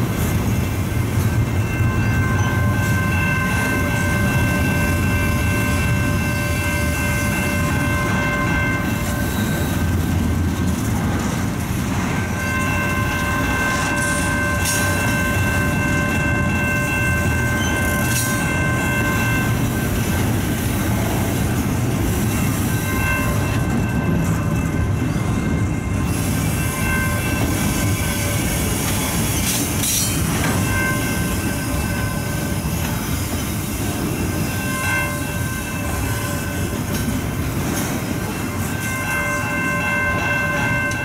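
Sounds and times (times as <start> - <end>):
freight train rumbling: 0.0 - 41.0
high multi-tone ringing: 0.3 - 10.2, 12.2 - 20.9.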